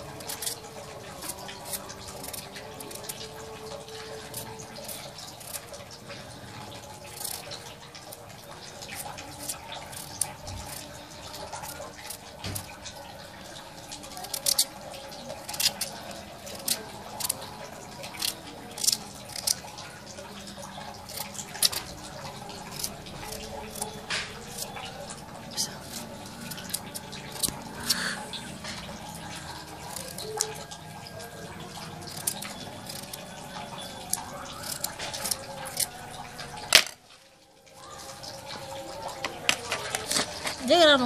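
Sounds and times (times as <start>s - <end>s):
knife cutting raw potato: 0.1s - 5.8s, 13.6s - 19.7s, 20.6s - 30.7s, 31.7s - 37.0s.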